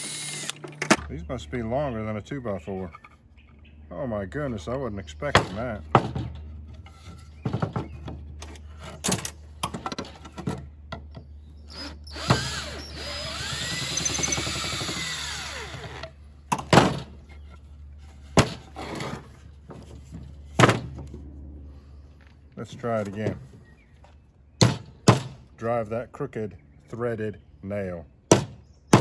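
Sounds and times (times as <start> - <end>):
cordless drill boring into wood: 0.0 - 0.6, 11.7 - 16.1
wooden boards being handled: 5.3 - 11.2, 16.5 - 21.3
sharp wooden knocks: 28.3 - 29.0.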